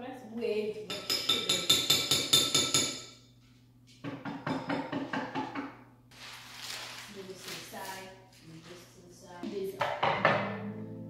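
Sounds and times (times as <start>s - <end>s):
metal spoon tapping cup: 0.9s - 3.1s.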